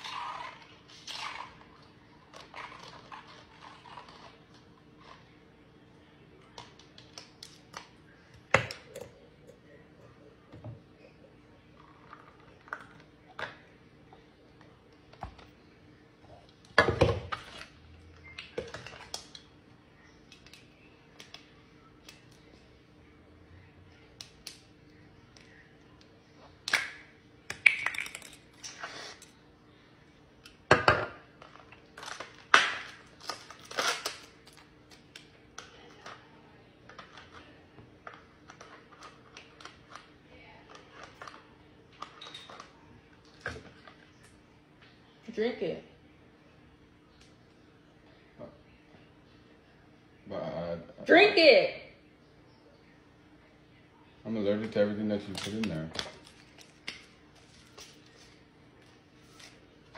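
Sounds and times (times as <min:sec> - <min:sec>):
faint steady hum: 0:00.0 - 0:59.9
objects clattering on countertop: 0:30.7 - 0:31.7.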